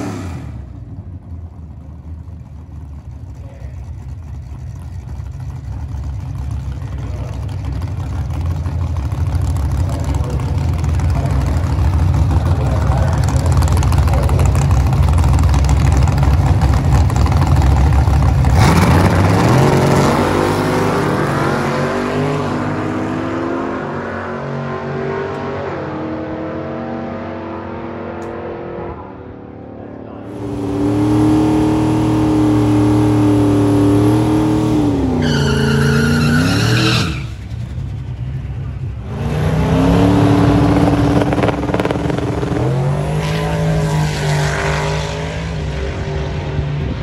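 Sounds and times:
car engine at high revs: 0.0s - 47.0s
drag-race cars rumbling and revving: 0.0s - 47.0s.

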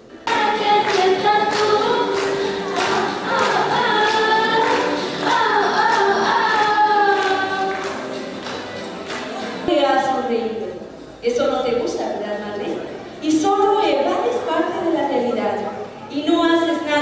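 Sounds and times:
women singing a duet: 0.3s - 8.0s.

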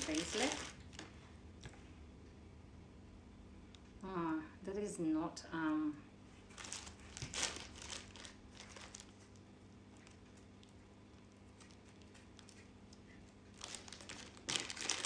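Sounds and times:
plastic wrapping crinkling: 0.0s - 1.1s, 6.5s - 10.8s, 11.4s - 15.0s.

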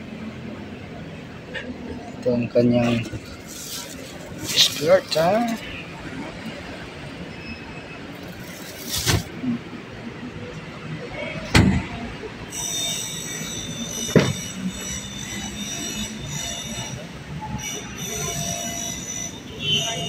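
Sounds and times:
car trunk lid thump: 14.1s - 14.4s.

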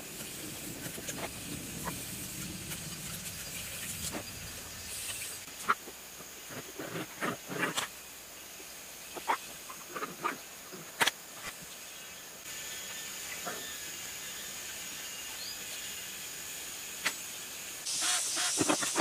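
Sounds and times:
steady high hiss: 0.0s - 19.0s.

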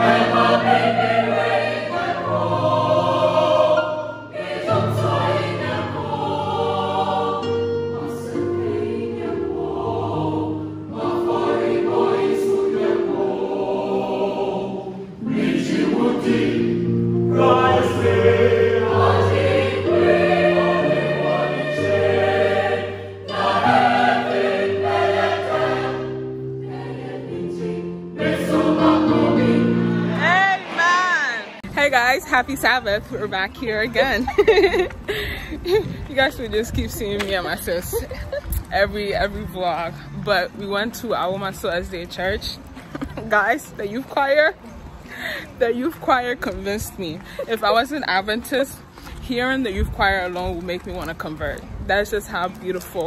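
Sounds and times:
choir singing in parts: 0.0s - 31.6s.

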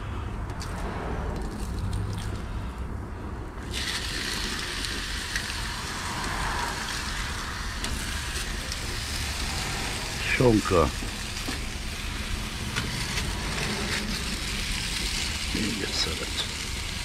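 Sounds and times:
low steady rumble: 0.0s - 17.0s
meat sizzling on griddle: 3.6s - 17.0s.

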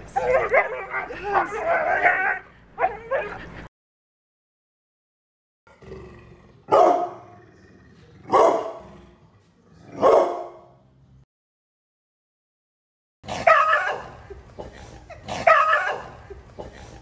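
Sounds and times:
dog growling low: 5.7s - 10.1s
dog barking deeply: 6.6s - 7.4s, 8.2s - 9.0s, 9.9s - 10.8s, 13.2s - 14.2s, 15.3s - 16.3s.

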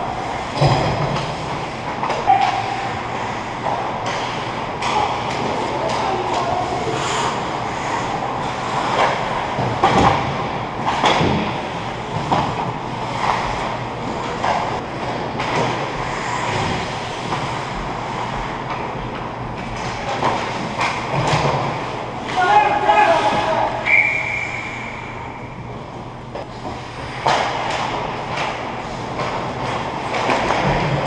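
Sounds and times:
skates on ice: 0.0s - 24.6s
hockey sticks and puck clacking: 0.0s - 24.7s, 26.3s - 31.0s.

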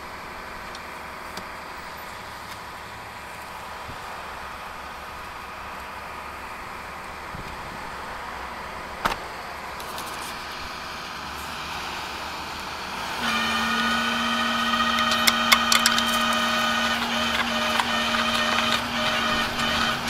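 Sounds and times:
hydraulic pump whine: 12.2s - 20.0s
sharp metallic clicks: 14.9s - 18.9s.

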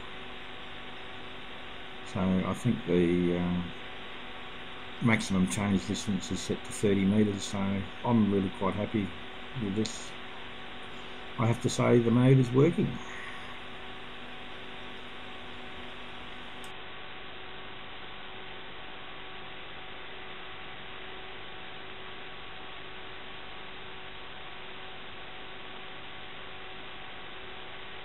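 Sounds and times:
steady hiss: 0.0s - 16.7s
faint electrical hum: 0.0s - 28.0s.

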